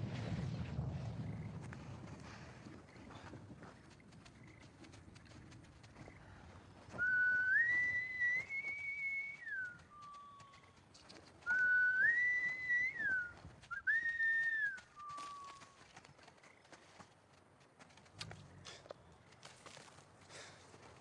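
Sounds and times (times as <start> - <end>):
man whistling: 6.9 - 10.4, 11.4 - 15.6.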